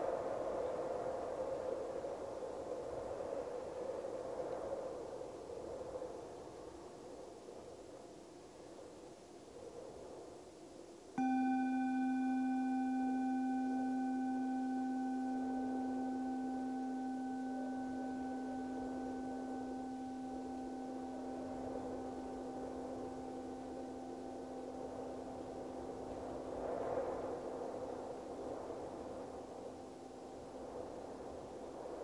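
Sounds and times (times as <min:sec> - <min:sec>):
soft wind hiss: 0:00.0 - 0:32.0
singing bowl ringing: 0:11.2 - 0:30.9.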